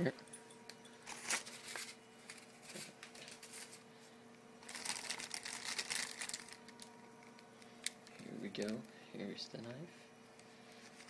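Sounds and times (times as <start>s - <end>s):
packaging wrap rustling: 1.1s - 3.9s, 4.6s - 8.9s.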